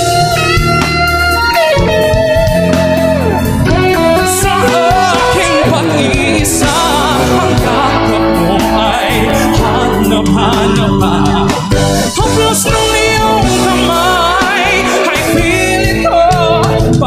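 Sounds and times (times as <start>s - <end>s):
instrumental accompaniment: 0.0s - 17.0s
man singing a ballad: 3.8s - 17.0s.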